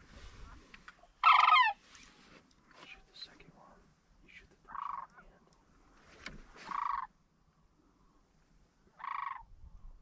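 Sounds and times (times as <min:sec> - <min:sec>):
crane rattling calls: 0:01.2 - 0:01.8, 0:06.6 - 0:07.1, 0:09.0 - 0:09.5.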